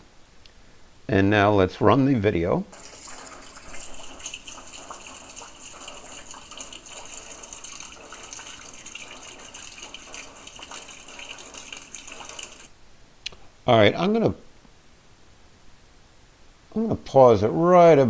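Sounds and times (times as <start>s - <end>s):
rainwater splashing into a bucket: 2.7s - 12.7s
water dripping: 2.7s - 12.7s.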